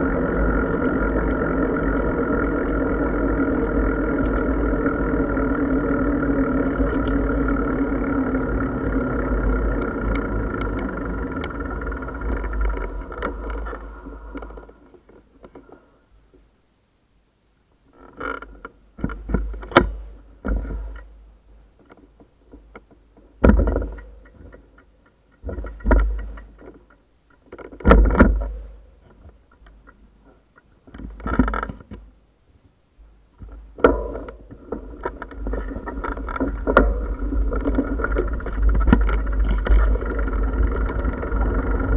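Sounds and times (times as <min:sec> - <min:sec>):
wind rumble on microphone: 0:33.4 - 0:41.9.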